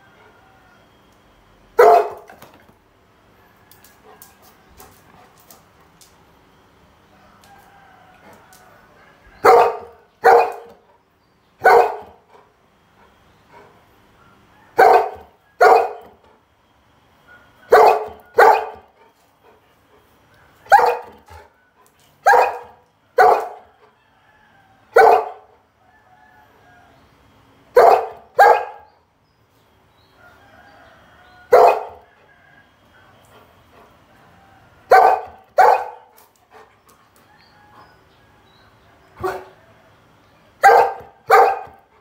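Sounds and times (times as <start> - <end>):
dog barking: 1.8 - 2.4, 9.4 - 10.8, 11.6 - 12.3, 13.5 - 16.2, 17.3 - 19.0, 20.6 - 21.5, 22.2 - 23.7, 24.9 - 25.6, 27.7 - 29.0, 31.5 - 32.1, 34.9 - 36.7, 39.2 - 39.6, 40.6 - 42.0.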